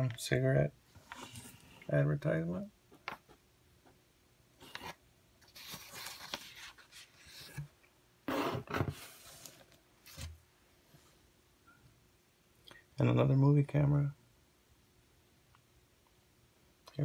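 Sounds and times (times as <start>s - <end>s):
magazine pages rustling: 5.5s - 7.7s.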